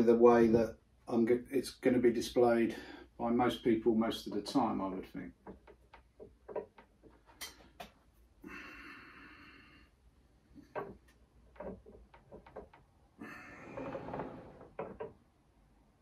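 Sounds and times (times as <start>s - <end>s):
light clicks and knocks: 4.2s - 8.0s, 10.5s - 13.0s, 13.8s - 15.2s.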